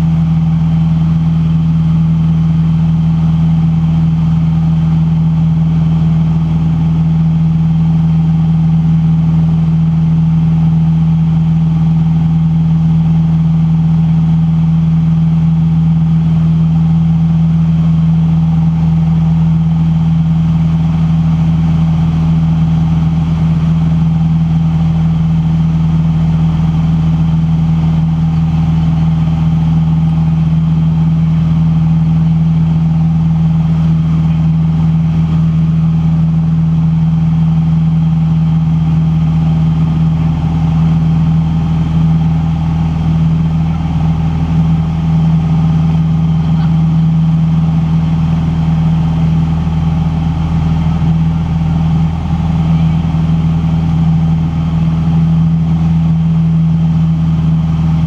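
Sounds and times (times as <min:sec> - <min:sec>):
aircraft engine droning in cockpit: 0:00.0 - 0:58.0.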